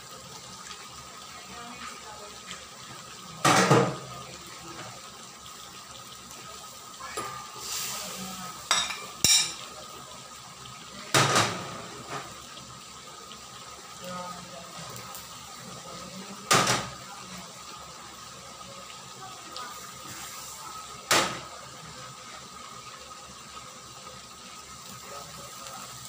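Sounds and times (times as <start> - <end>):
low sizzle: 0.0 - 26.0
food splashing into a wok: 11.1 - 12.4, 16.5 - 17.0, 21.0 - 21.5.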